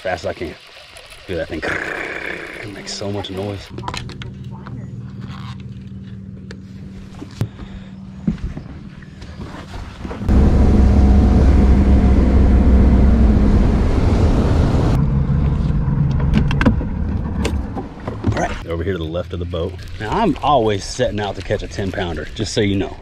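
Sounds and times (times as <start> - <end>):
boat engine running at speed: 5.1 - 18.1
outboard motor idling: 10.3 - 15.0.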